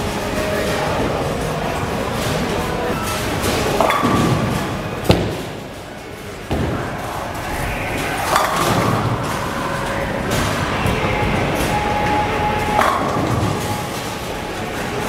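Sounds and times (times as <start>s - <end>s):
bowling ball rolling: 0.2s - 15.0s
ball crashing into pins: 3.4s - 5.7s, 6.5s - 7.1s
bowling ball thumping on lane: 3.6s - 5.7s, 12.1s - 13.8s.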